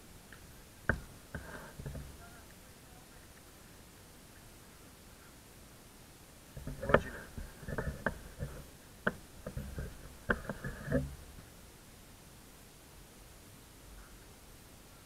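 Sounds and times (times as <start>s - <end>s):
sharp knocks and thumps: 0.9s - 2.2s, 6.6s - 11.2s.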